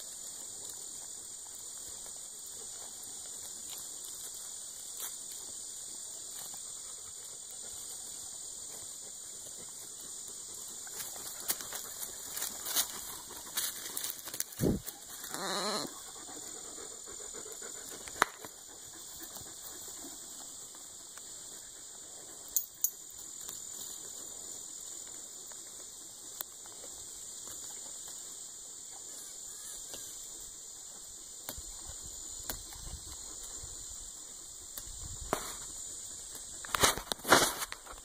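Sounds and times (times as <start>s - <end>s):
rustling leaves and stems: 0.0s - 16.6s, 31.6s - 38.0s
high insect drone: 0.0s - 38.0s.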